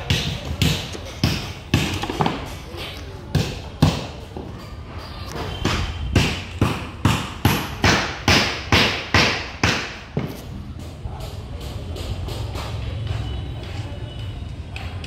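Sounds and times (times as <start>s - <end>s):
hammer striking wood: 0.0s - 2.6s, 5.6s - 10.4s.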